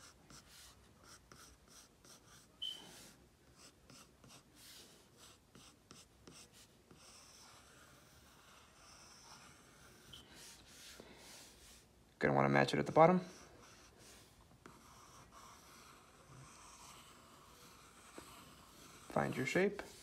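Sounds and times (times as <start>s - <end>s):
pencil scratching on paper: 0.0s - 11.9s, 12.8s - 20.0s
short high squeak: 2.6s - 2.9s.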